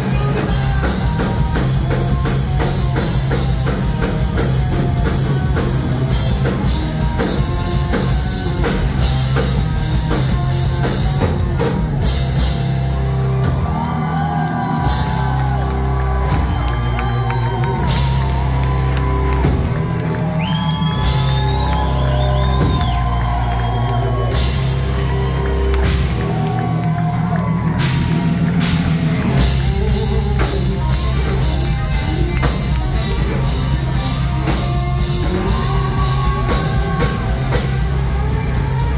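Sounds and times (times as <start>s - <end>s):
high guitar melody with bends: 0.0s - 13.8s, 24.1s - 38.9s
rock band playing live: 0.0s - 38.9s.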